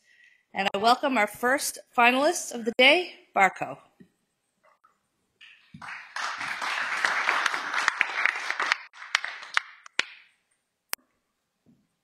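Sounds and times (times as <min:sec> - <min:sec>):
audience applauding: 0:05.4 - 0:10.1.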